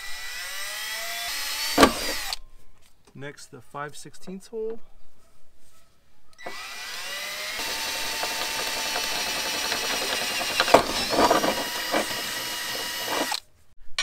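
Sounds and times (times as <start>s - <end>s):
cordless drill drilling sheet metal: 0.0s - 2.4s, 6.4s - 13.4s.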